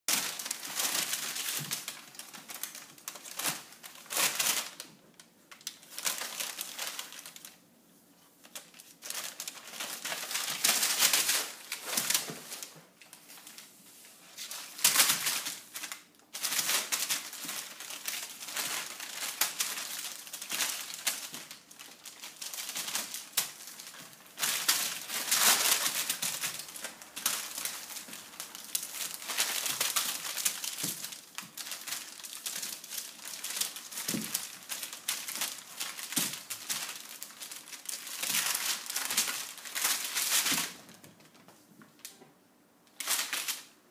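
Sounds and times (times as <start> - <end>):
paper bags crinkling: 0.1 - 7.6, 8.4 - 41.1, 43.0 - 43.7.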